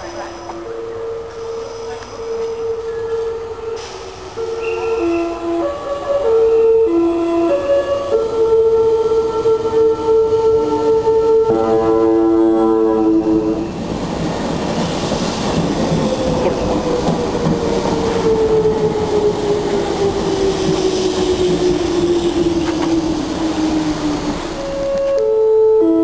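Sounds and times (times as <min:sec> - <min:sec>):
train wheels rumbling: 0:00.0 - 0:25.3
chord of held tones: 0:24.6 - 0:26.0.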